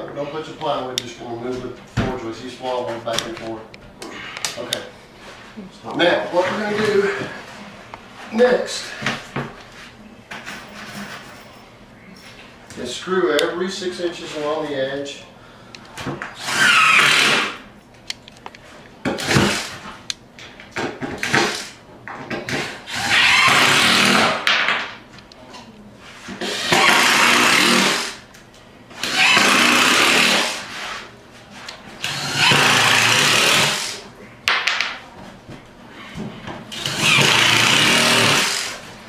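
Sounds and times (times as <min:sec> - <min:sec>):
screw gun driving screws into wood: 0:36.7 - 0:38.8.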